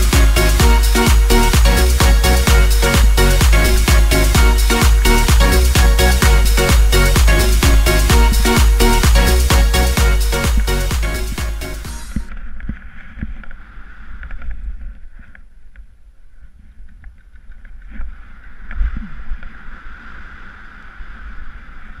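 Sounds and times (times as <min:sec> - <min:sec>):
dance music: 0:00.0 - 0:12.3.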